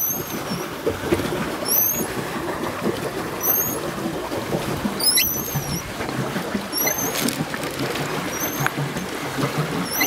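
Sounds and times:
pedal mechanism squeak: 0.0 - 0.7, 1.6 - 2.1, 3.4 - 3.8, 5.0 - 5.9, 6.7 - 7.4, 8.2 - 9.1, 9.8 - 10.0
paddle churning water: 0.0 - 10.0.

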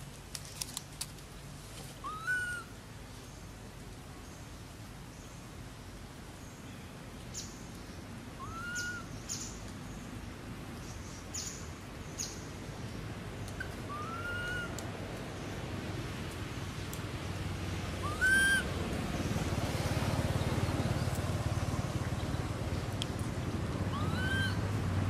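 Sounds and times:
arched whistling calls: 2.0 - 2.7, 8.4 - 9.6, 13.5 - 14.8, 18.0 - 18.7, 23.9 - 24.7
low steady rumble: 9.0 - 25.0.

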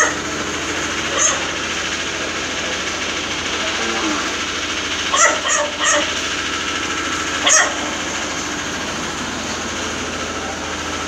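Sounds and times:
small engine running: 0.0 - 11.0
dog barking: 1.1 - 1.5, 5.1 - 6.2, 7.4 - 7.9.

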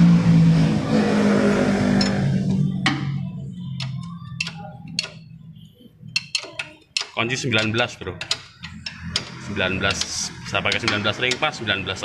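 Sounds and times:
loud drone: 0.0 - 3.5.

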